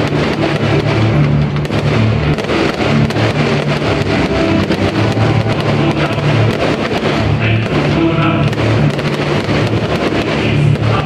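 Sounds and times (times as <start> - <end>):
fireworks popping and banging: 0.0 - 11.0
loud guitar-driven music: 0.0 - 11.0.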